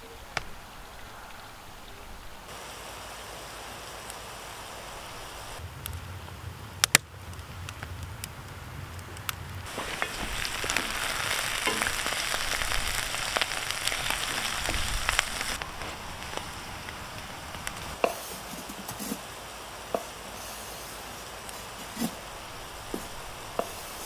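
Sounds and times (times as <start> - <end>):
mushrooms sizzling in a pan: 9.7 - 24.0.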